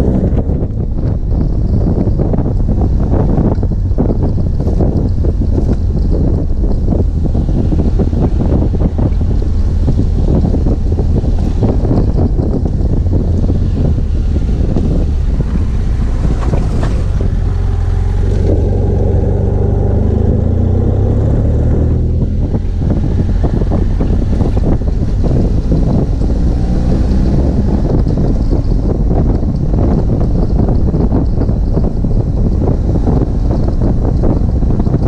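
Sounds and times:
motorcycle engine running: 0:00.0 - 0:35.0
wind buffeting microphone: 0:00.0 - 0:35.0
knocks and rattles: 0:00.3 - 0:19.3.

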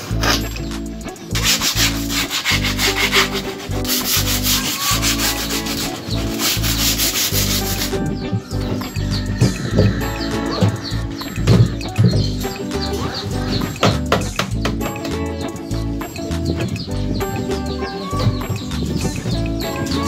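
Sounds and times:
sandpaper rubbing on wood: 0:01.3 - 0:08.0.

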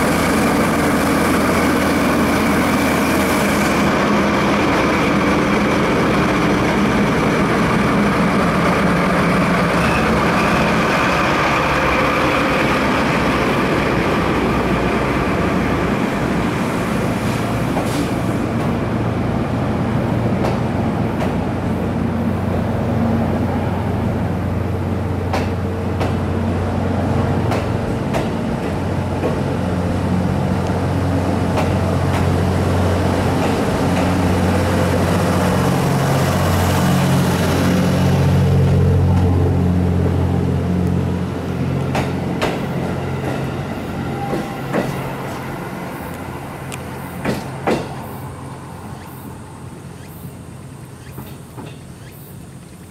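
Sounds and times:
diesel locomotive engine: 0:00.0 - 0:52.9
train coaches rolling past: 0:00.0 - 0:52.9
wheels clicking over rail joints: 0:50.0 - 0:52.9.

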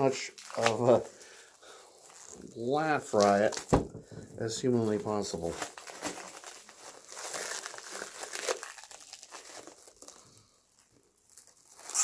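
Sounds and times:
plastic wrap crinkling and tearing: 0:00.0 - 0:12.0.

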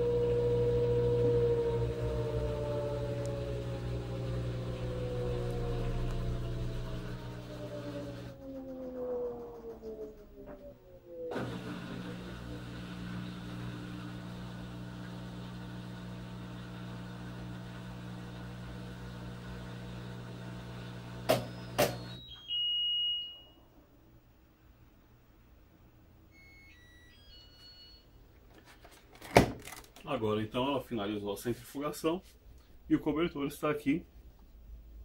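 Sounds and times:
washing machine motor hum: 0:00.0 - 0:22.4
high beep: 0:21.5 - 0:23.6, 0:26.4 - 0:28.2
faint electronic tones: 0:26.2 - 0:28.3.

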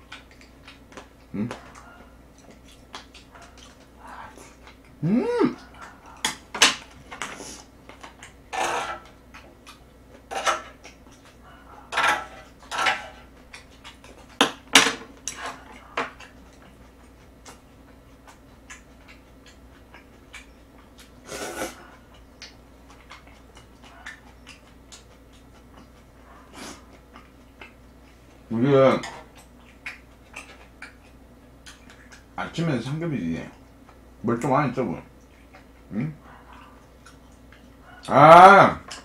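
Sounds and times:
chewing and eating: 0:00.0 - 0:39.0
person humming: 0:01.3 - 0:01.6, 0:05.0 - 0:05.7.

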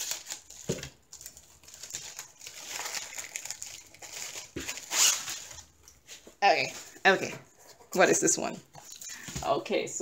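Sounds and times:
plastic wrapping crinkling: 0:00.0 - 0:06.1.

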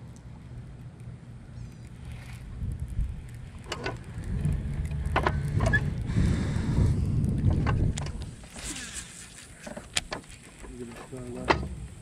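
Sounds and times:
wind buffeting microphone: 0:02.0 - 0:09.1
sharp clicks and knocks: 0:02.7 - 0:06.1, 0:07.2 - 0:08.4, 0:09.6 - 0:12.0.

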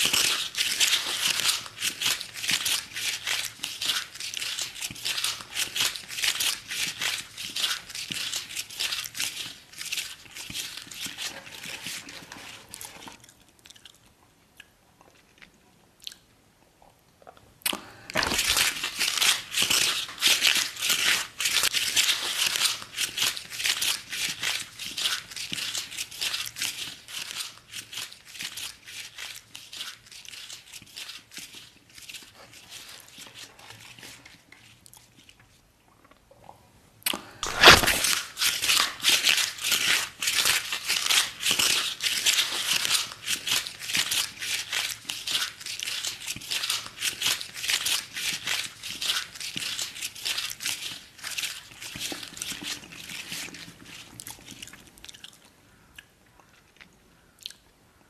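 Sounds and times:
cardboard box tearing and crumpling: 0:37.4 - 0:44.3.

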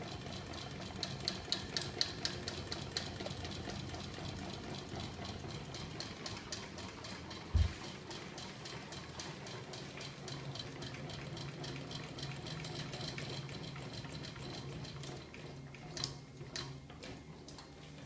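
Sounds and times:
motor hum: 0:01.6 - 0:08.0.

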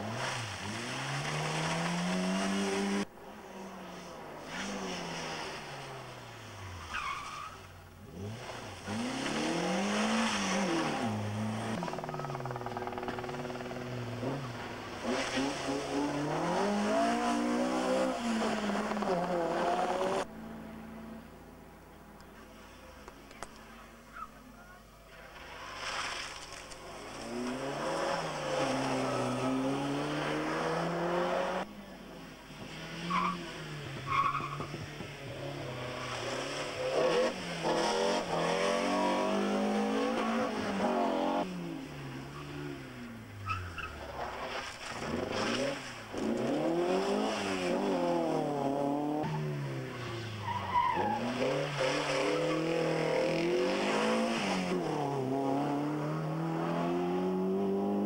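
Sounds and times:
rally car engines revving: 0:00.0 - 0:58.0
tyre squeals: 0:06.9 - 0:07.7.

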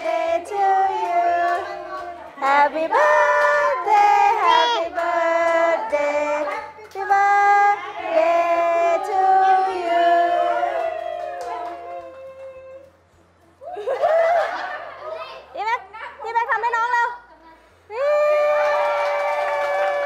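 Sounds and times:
women and child singing together: 0:00.0 - 0:12.8.

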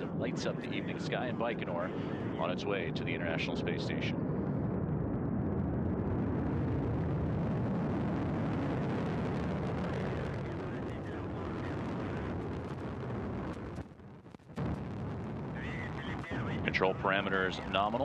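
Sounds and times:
rocket engine rumble: 0:00.0 - 0:18.0
sharp crackles: 0:03.9 - 0:18.0.

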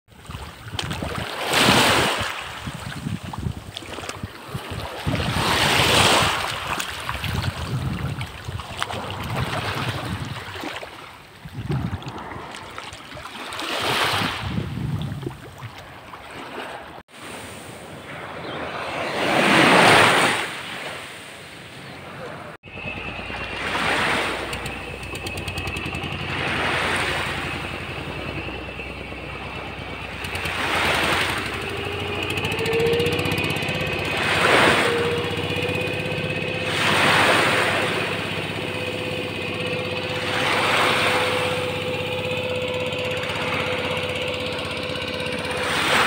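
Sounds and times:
small waves washing: 0:00.1 - 0:21.7, 0:22.7 - 0:46.0
wind on microphone: 0:00.2 - 0:10.6, 0:11.4 - 0:12.9, 0:13.8 - 0:15.7.

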